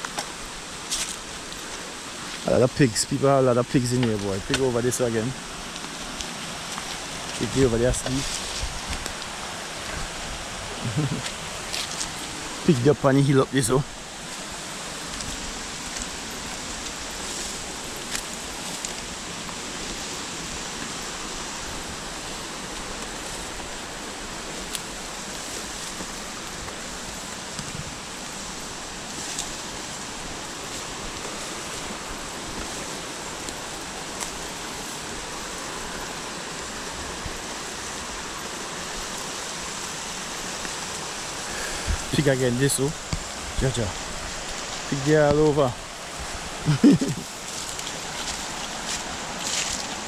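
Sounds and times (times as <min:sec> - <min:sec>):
river rushing: 0:00.0 - 0:50.0.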